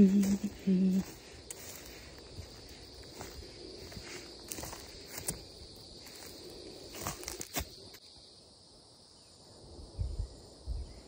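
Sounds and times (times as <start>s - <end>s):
footsteps crunching dry grass: 0.0s - 8.0s
high insect drone: 0.0s - 11.0s.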